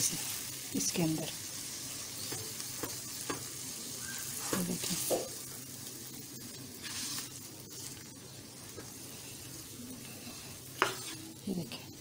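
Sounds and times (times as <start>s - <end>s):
dough sizzling: 0.0s - 12.0s
spatula stirring dough in pan: 1.7s - 11.6s
spatula scraping pan: 6.7s - 8.0s, 8.8s - 11.4s.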